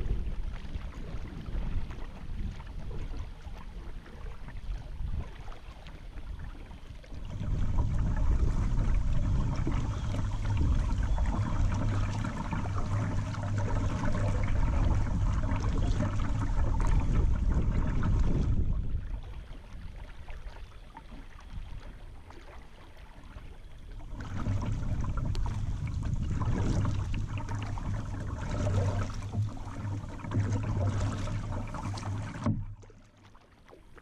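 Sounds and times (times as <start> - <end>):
river water rushing and rippling: 24.0 - 33.5.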